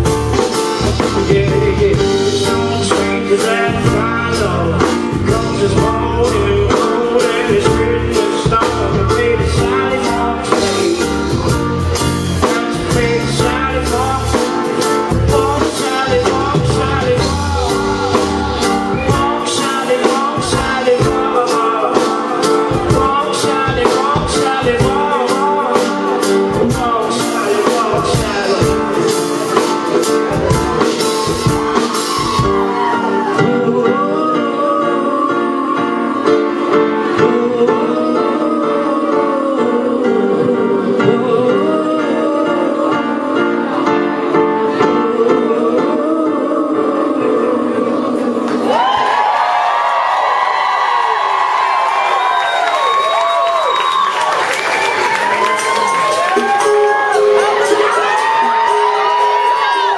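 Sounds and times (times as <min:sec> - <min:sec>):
deep bass: 0:00.0 - 0:21.4
live band playing: 0:00.0 - 0:59.9
man singing lead: 0:00.0 - 0:59.9.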